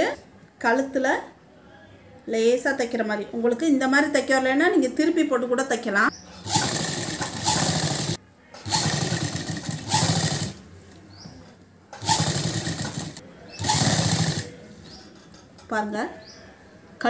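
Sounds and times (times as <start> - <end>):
sewing machine running: 6.4 - 10.6, 12.0 - 14.5.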